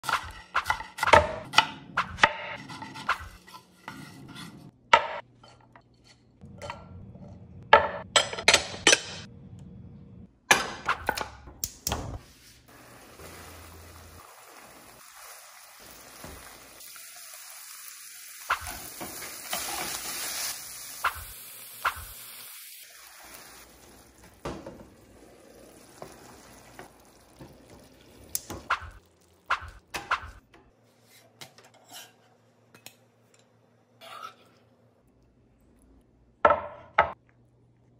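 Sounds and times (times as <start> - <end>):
meat sizzling in a frying pan: 12.8 - 24.2.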